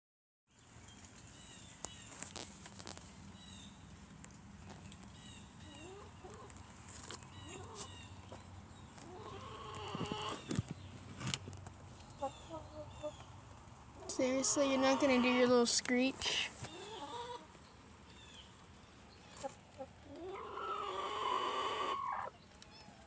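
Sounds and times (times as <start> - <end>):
chickens chirping and clucking: 4.8 - 23.0
knocks and rustles in coop: 6.3 - 12.1.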